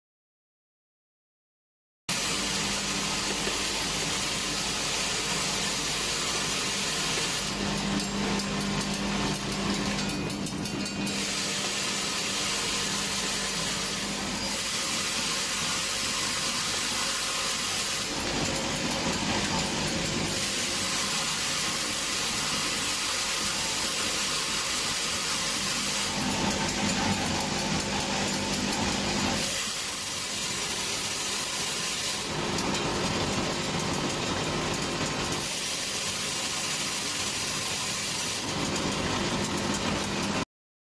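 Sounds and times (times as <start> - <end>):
metallic clatter and hiss: 2.2 - 40.4.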